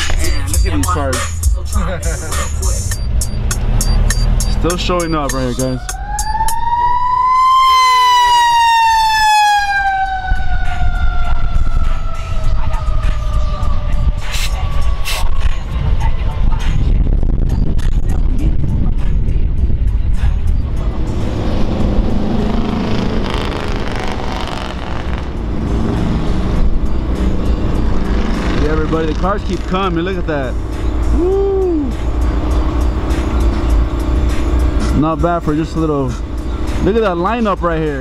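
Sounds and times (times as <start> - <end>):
cars passing at low speed: 0.0 - 17.3, 19.0 - 38.0
vehicle engine rumbling: 0.0 - 38.0
siren winding down: 3.0 - 15.5, 30.7 - 34.8
motorcycle engines passing: 20.3 - 38.0.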